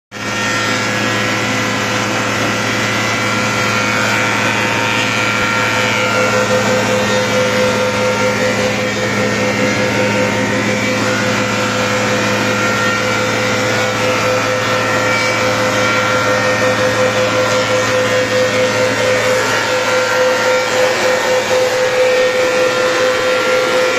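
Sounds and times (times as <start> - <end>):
planer machine whining: 0.1 - 23.9.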